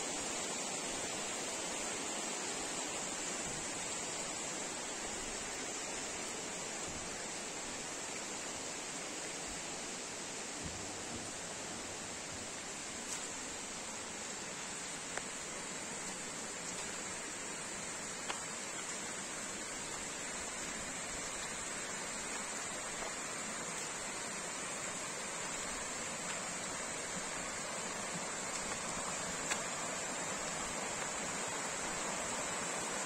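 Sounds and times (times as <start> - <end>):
stream water rushing: 0.0 - 33.0
faint ticks: 18.1 - 19.0.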